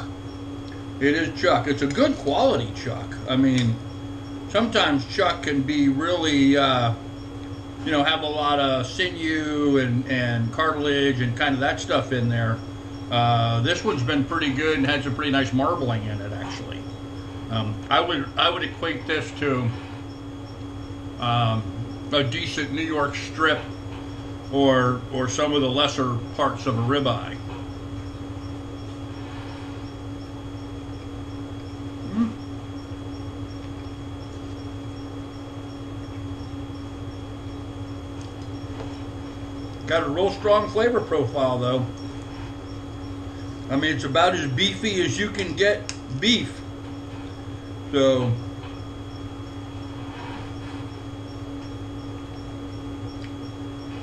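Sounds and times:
room hum: 0.0s - 54.0s
faint high ticking: 10.5s - 54.0s.

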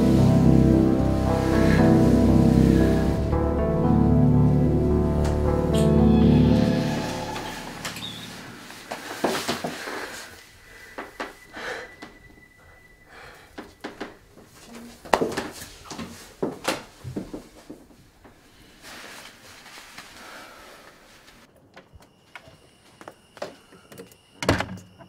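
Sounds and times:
breathing: 9.6s - 12.1s, 13.1s - 13.8s, 20.1s - 21.4s.

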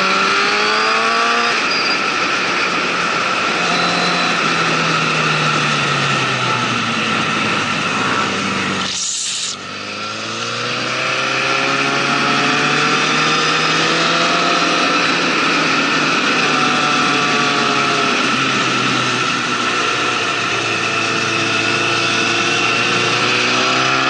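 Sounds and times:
motorcycle engine running: 0.0s - 24.0s
wind and road noise: 0.0s - 24.0s
short hiss: 8.9s - 9.6s.

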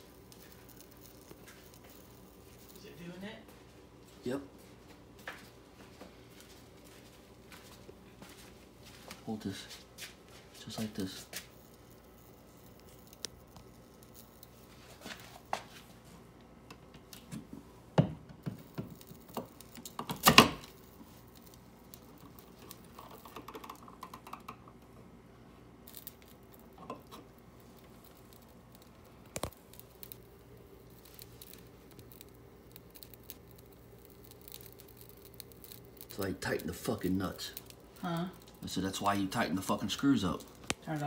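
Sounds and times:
clicks and knocks of wiring handled: 18.4s - 24.8s.

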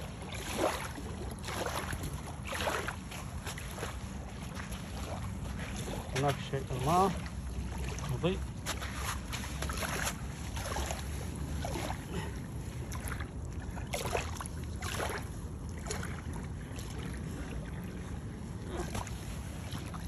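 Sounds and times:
sea: 0.0s - 20.0s.

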